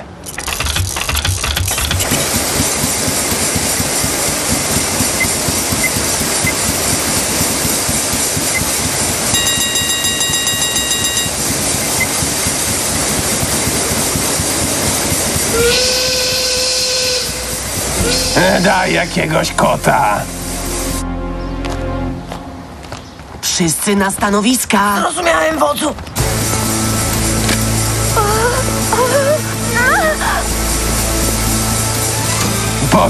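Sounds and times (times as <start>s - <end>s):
cartoon machine chugging hiss: 0.4s - 20.9s, 26.2s - 33.0s
high steady tone: 3.1s - 21.1s
whistle-like tone: 15.4s - 18.7s.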